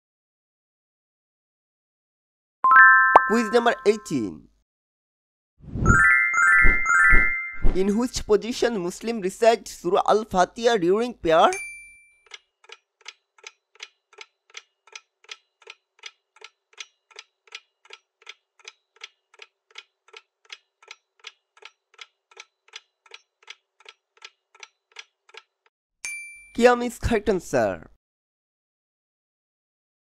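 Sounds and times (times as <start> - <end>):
clock ticking: 12.2 - 25.7.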